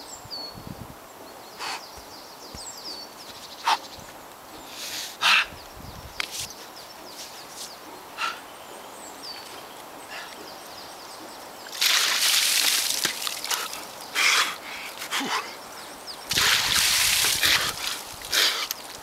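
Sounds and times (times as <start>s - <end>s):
water pouring and splashing: 11.6s - 14.0s, 16.3s - 19.0s.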